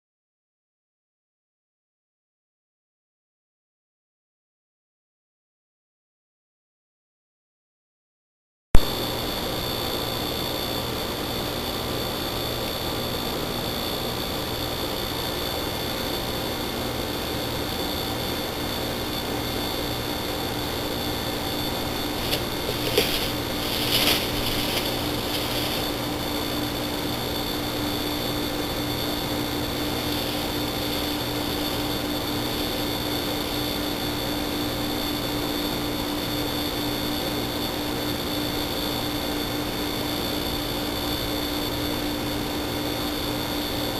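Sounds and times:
faint high whine: 8.8s - 43.9s
low hum: 14.3s - 33.9s.

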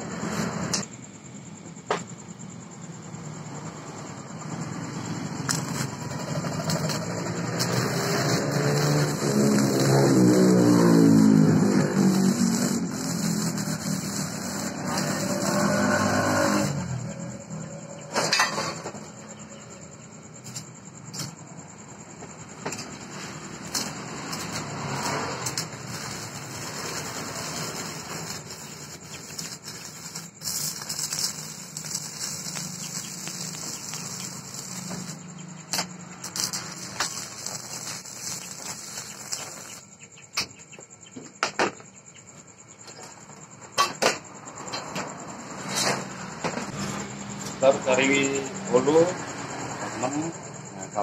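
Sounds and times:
welding arc crackling: 5.1s - 17.1s, 22.6s - 40.0s.

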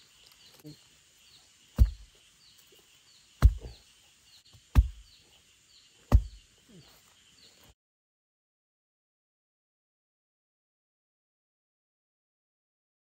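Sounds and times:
blade chopping bamboo: 1.8s - 2.2s, 3.4s - 3.8s, 4.6s - 5.1s, 6.1s - 6.5s.

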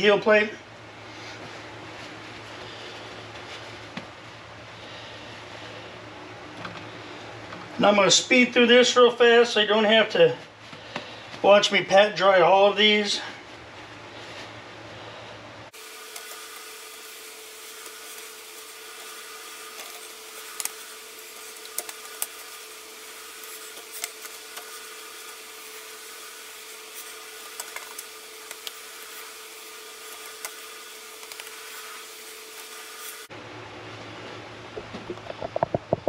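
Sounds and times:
constant hum: 0.0s - 36.0s
paper towels rubbing fish: 1.1s - 5.9s, 13.5s - 33.2s.

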